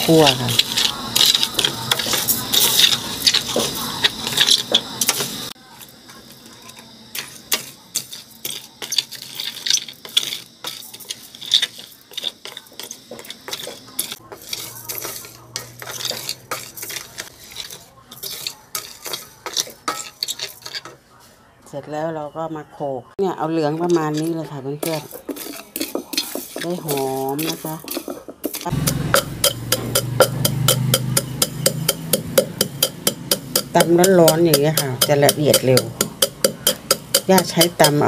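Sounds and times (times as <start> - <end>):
wooden spatula scraping rice: 0.0 - 21.4, 23.7 - 29.0.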